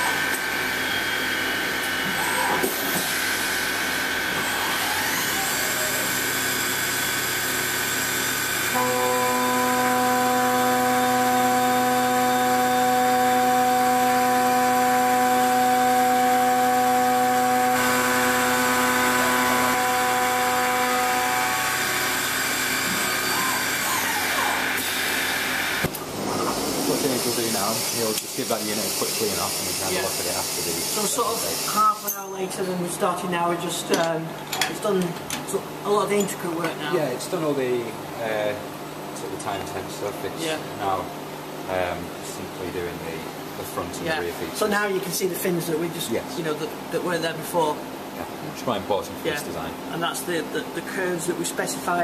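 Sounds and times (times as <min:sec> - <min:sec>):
milling machine cutting metal: 0:00.0 - 0:32.3
steady cutting tones: 0:07.8 - 0:28.8
high whine: 0:08.7 - 0:28.0.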